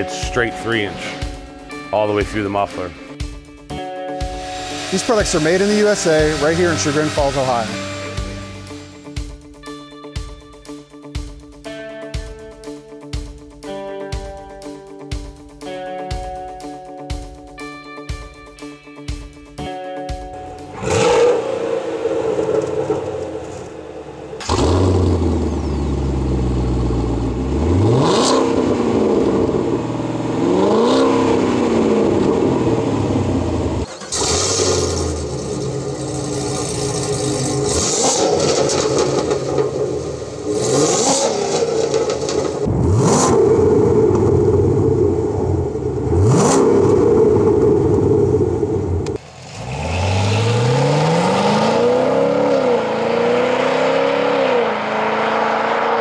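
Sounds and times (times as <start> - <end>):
car exhaust revving: 4.2 - 9.4, 20.6 - 56.0.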